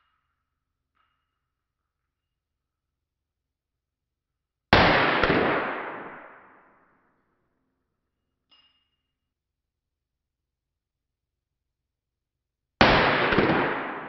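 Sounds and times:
pistol shot with echo: 4.7s - 6.8s, 12.8s - 14.0s.

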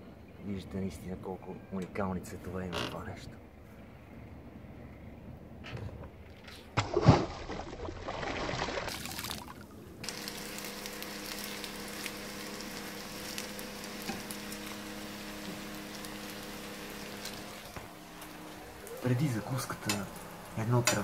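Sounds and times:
bread sizzling in oil: 10.0s - 21.0s.

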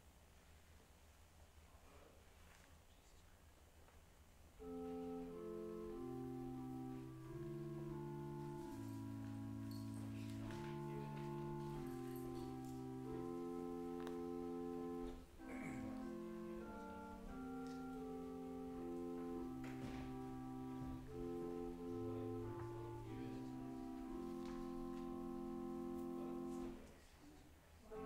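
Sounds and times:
sustained keyboard chords: 4.6s - 26.8s.

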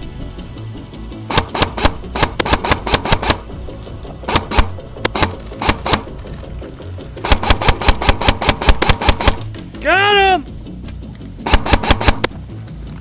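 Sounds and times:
background music: 0.0s - 13.0s
airsoft gun firing shots: 1.3s - 3.5s, 4.2s - 6.1s, 7.2s - 9.5s, 11.4s - 12.3s.

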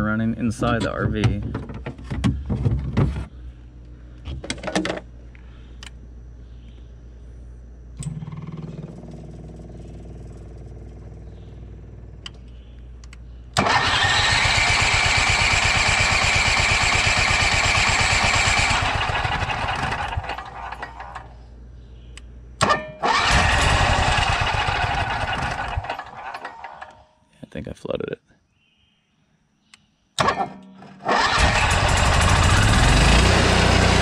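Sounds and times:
low hum: 0.0s - 26.9s
click: 12.2s - 13.2s, 22.1s - 22.3s, 29.7s - 29.9s
generator engine cranking on starter: 13.6s - 21.4s, 22.6s - 27.0s, 30.2s - 34.0s.

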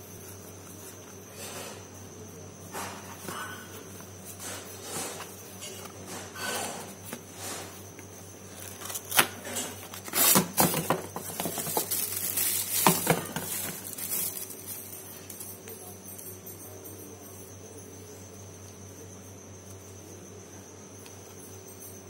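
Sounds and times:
rustling boxes in plastic sack: 8.5s - 15.0s.

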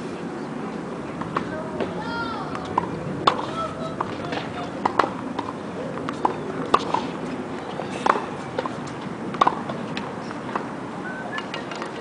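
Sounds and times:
racket hitting tennis ball: 1.2s - 10.7s
tennis ball bouncing: 1.2s - 10.8s.

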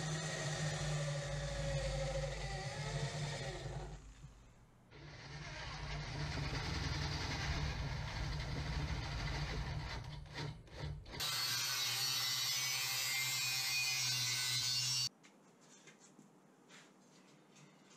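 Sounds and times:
angle grinder on steel: 0.0s - 4.2s, 11.1s - 15.1s
electric drill boring steel: 0.0s - 4.2s, 5.0s - 9.9s.

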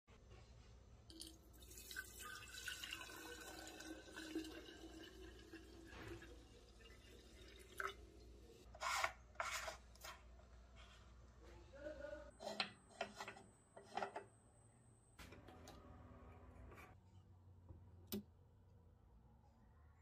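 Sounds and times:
liquid trickling into tank: 1.1s - 8.6s.

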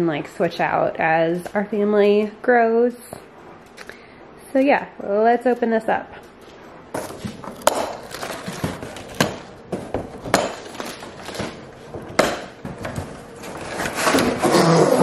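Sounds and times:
cardboard rustling: 6.9s - 15.0s.

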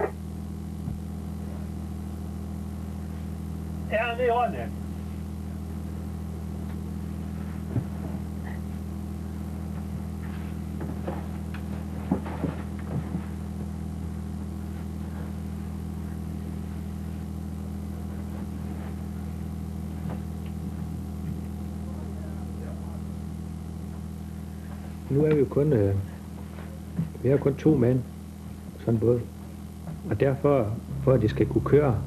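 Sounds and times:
boat engine drone: 30.8s - 32.0s.

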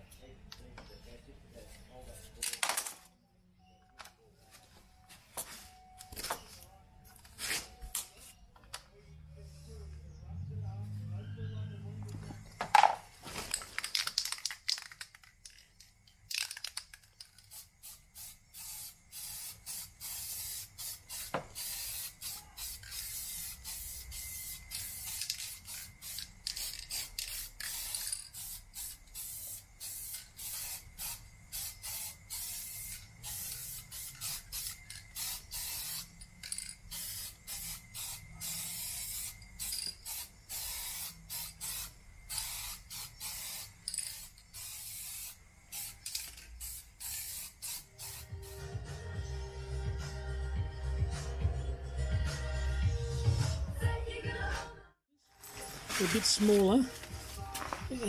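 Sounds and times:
spray can hissing: 17.2s - 48.7s.

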